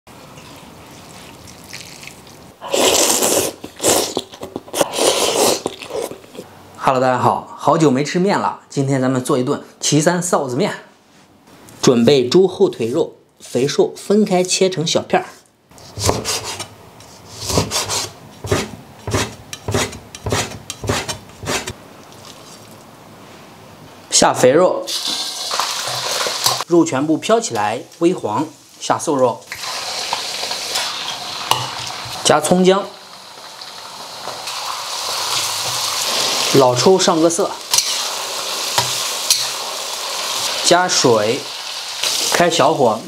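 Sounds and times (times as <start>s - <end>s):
noodles being slurped: 0.4s - 6.4s
cleaver chopping on cutting board: 16.0s - 16.5s.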